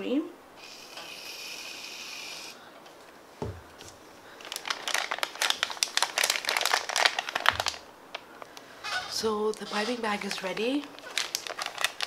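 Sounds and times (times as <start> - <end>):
aerosol foam hissing: 0.6 - 2.6
soft thump: 3.4 - 3.6
plastic bag crinkling: 4.3 - 12.0.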